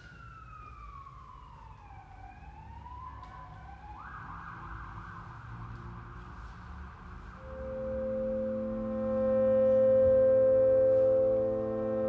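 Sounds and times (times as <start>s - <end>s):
siren-like gliding tone: 7.4s - 12.0s.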